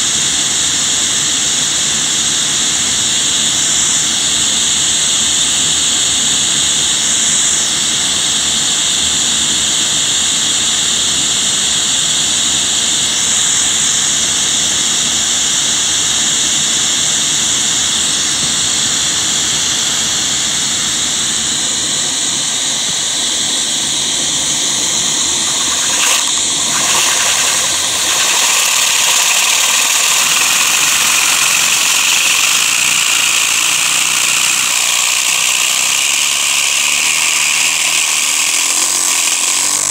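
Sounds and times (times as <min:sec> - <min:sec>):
vacuum cleaner suction hiss: 0:19.2 - 0:39.9.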